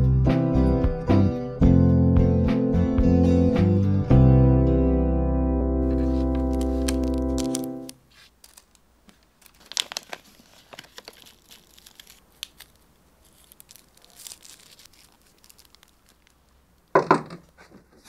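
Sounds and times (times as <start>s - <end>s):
guitar music: 0.0s - 7.9s
tobacco pouch rustling: 5.8s - 17.6s.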